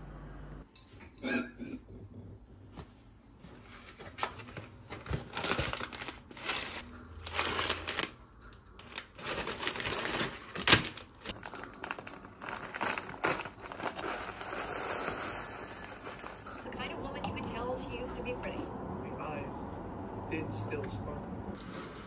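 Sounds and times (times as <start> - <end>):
plastic packets crinkling: 4.9 - 16.7.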